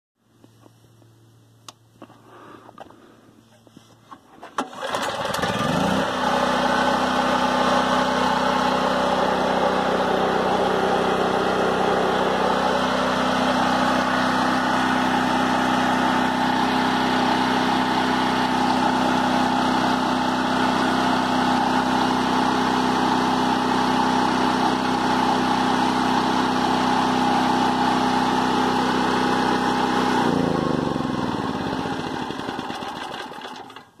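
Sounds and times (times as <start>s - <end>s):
generator recoil pull-start: 4.1s - 14.9s, 29.2s - 34.0s
generator engine running: 4.3s - 34.0s.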